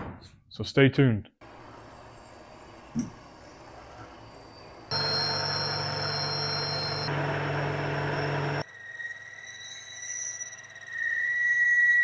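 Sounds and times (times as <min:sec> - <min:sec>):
metal cutting machine whine: 0:03.5 - 0:12.0
low motor hum: 0:04.2 - 0:08.6.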